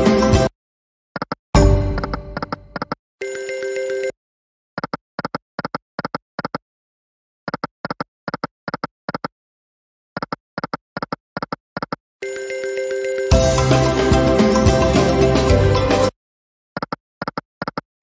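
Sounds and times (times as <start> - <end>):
game chime: 1.6 - 2.4, 3.2 - 4.1, 12.2 - 13.8.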